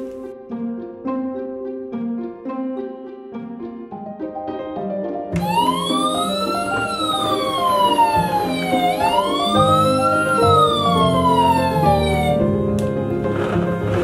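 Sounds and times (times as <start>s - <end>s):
light background music: 0.0s - 14.0s
siren wailing: 5.4s - 12.7s.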